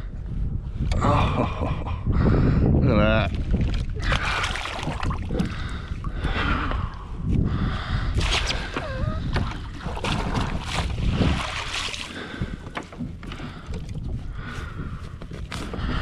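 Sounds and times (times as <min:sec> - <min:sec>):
wind rumble on microphone: 0:00.0 - 0:16.0
water splashing in landing net: 0:03.6 - 0:05.4, 0:08.2 - 0:08.8, 0:09.4 - 0:12.2.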